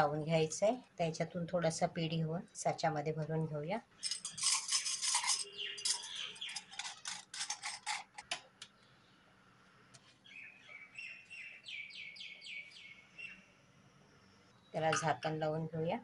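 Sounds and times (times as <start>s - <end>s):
bird chirping: 4.0s - 7.1s, 10.2s - 13.6s
steel mould clicking and scraping: 4.0s - 8.5s.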